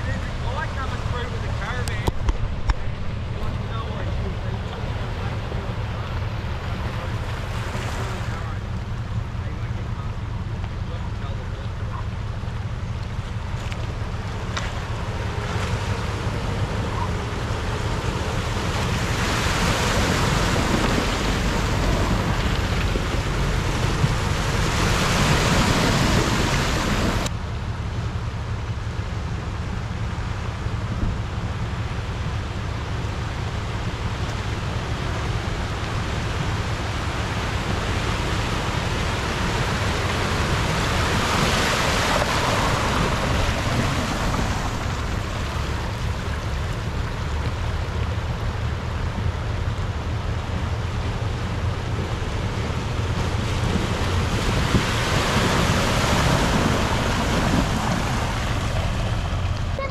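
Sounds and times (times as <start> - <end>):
vehicle engine and tyres rumbling: 0.0 - 59.9
rushing noise: 32.6 - 59.9.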